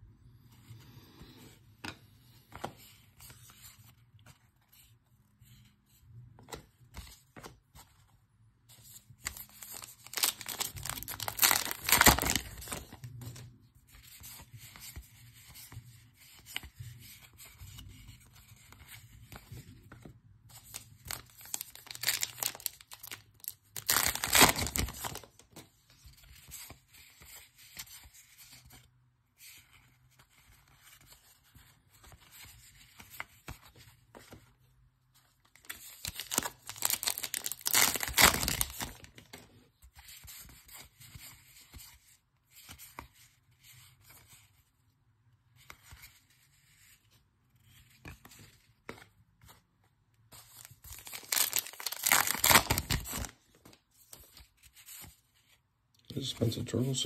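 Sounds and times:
wrapper and cards rustling: 8.9s - 28.8s, 35.2s - 44.6s, 45.6s - 55.6s
wrappers tearing open: 9.8s - 12.4s, 21.1s - 25.2s, 36.1s - 39.0s, 50.9s - 53.3s.

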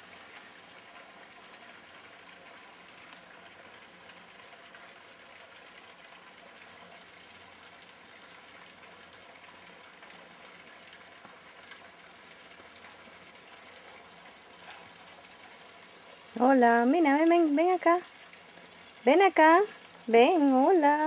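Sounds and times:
faint ticks: 0.0s - 15.7s
insect chorus drone: 0.0s - 21.0s.

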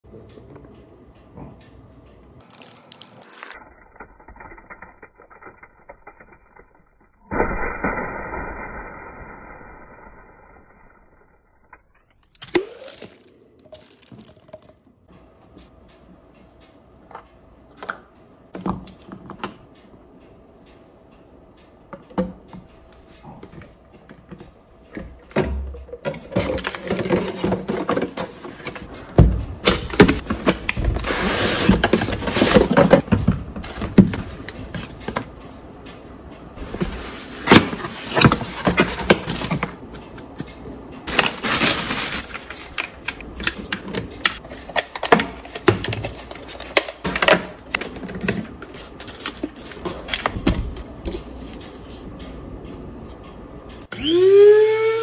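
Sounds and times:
cardboard and plastic rustling: 26.2s - 35.2s, 41.1s - 50.8s.

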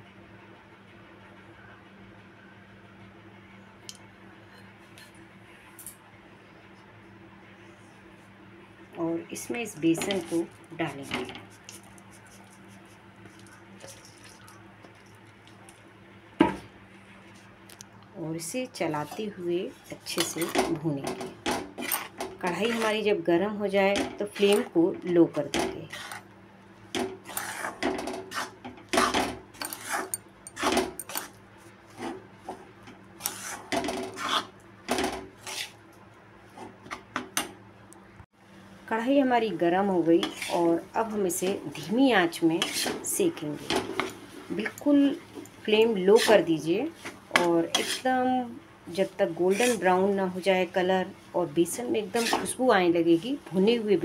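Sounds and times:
metal spatula scraping a pan: 21.8s - 23.0s, 25.9s - 26.3s, 27.2s - 32.2s, 33.2s - 34.5s, 40.2s - 40.8s, 42.5s - 44.7s, 45.8s - 48.2s, 49.0s - 50.2s, 52.0s - 52.6s.

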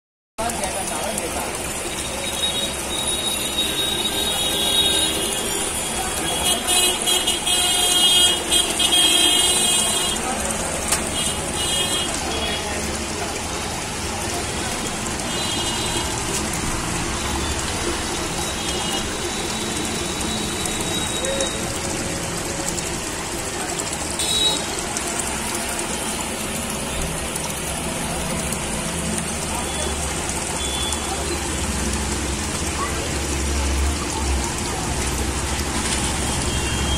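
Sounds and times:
aquarium water bubbling: 0.4s - 36.9s
road traffic: 0.4s - 36.9s
vehicle horn toots: 2.3s - 10.2s, 15.3s - 16.2s, 24.2s - 24.7s, 30.6s - 31.0s.

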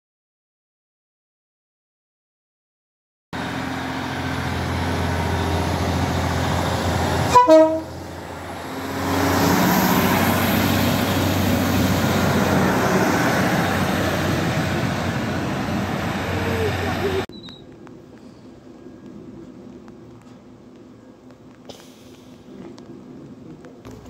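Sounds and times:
diesel train engine: 3.4s - 24.0s
two-note train horn toot: 7.2s - 8.0s.

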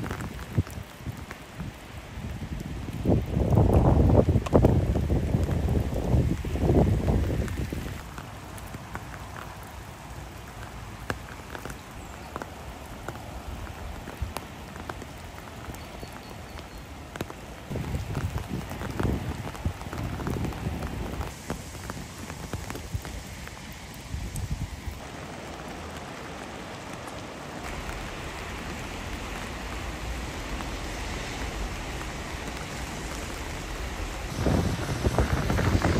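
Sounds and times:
wind rumble on microphone: 0.0s - 8.0s, 17.7s - 23.2s, 23.9s - 25.0s, 27.7s - 35.9s
rain on water and grass: 0.0s - 35.9s.

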